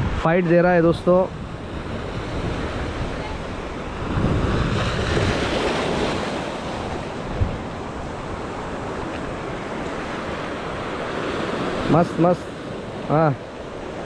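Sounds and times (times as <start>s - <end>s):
wind buffeting microphone: 0.0s - 11.7s
waves breaking over rocks: 1.4s - 14.0s.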